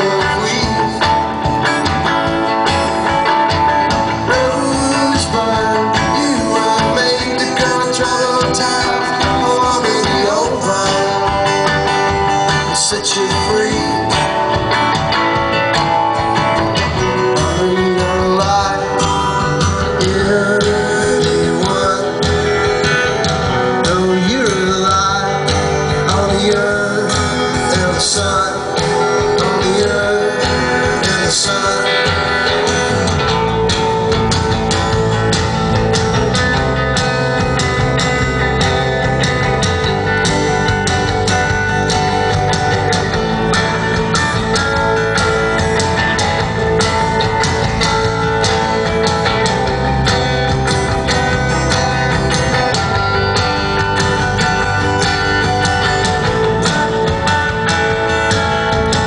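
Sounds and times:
live band playing rock song: 0.0 - 59.0.

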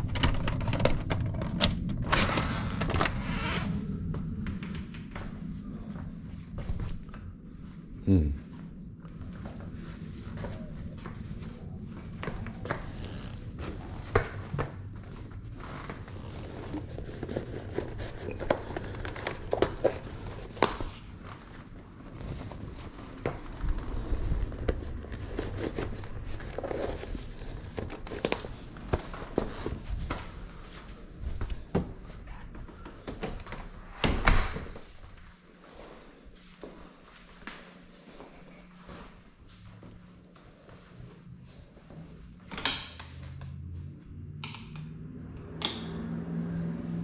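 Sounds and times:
low hum: 0.0 - 42.5
footsteps on a floor: 4.0 - 8.8, 34.7 - 42.2.

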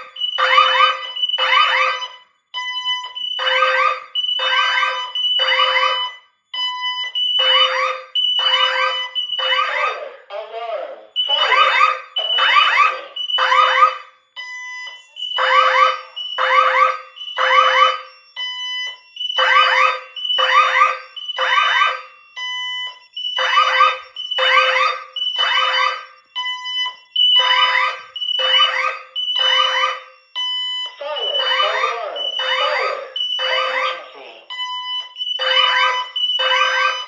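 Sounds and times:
fire alarm sirens pulsing: 0.0 - 37.0
thin steady alarm tone: 0.0 - 37.0.

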